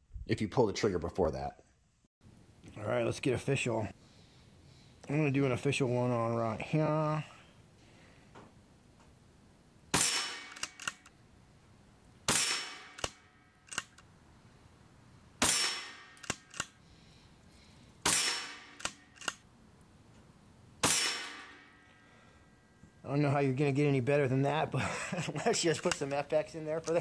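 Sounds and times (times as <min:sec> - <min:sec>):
air rifle shots: 0:09.9 - 0:11.1, 0:12.3 - 0:14.0, 0:15.4 - 0:16.8, 0:18.0 - 0:19.4, 0:20.8 - 0:21.8
small clicks: 0:10.5 - 0:11.1, 0:13.0 - 0:14.1, 0:16.2 - 0:16.8, 0:18.8 - 0:19.4.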